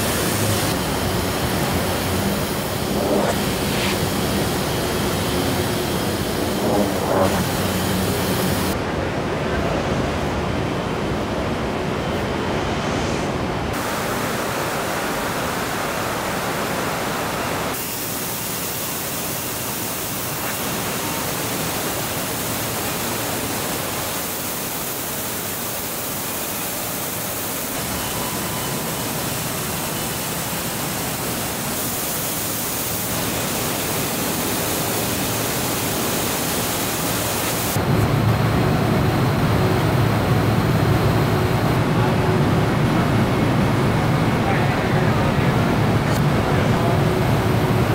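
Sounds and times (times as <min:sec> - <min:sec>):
factory machinery rushing noise: 0:00.0 - 0:47.9
deep rumble: 0:02.8 - 0:08.8.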